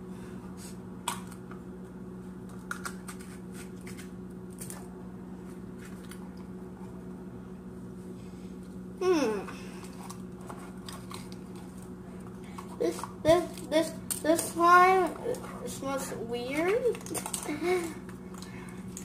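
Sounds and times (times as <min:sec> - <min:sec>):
steady low hum: 0:00.0 - 0:19.0
person groaning in disgust: 0:09.0 - 0:09.5.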